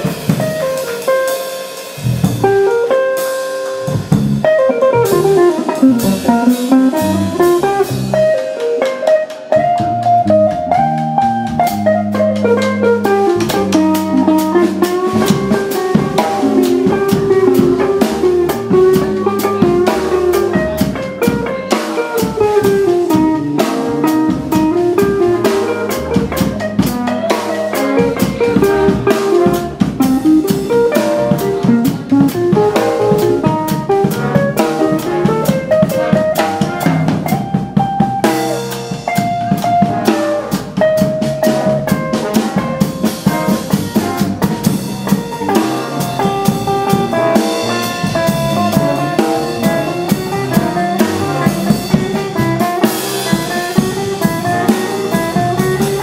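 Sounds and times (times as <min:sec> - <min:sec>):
bass: 0:00.0 - 0:56.0
drum kit strikes: 0:00.0 - 0:56.0
guitar: 0:00.0 - 0:56.0.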